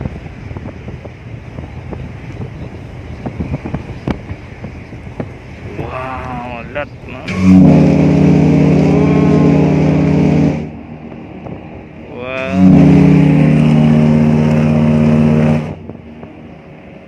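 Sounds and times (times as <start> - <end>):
ship horn blasts: 6.2 - 17.0.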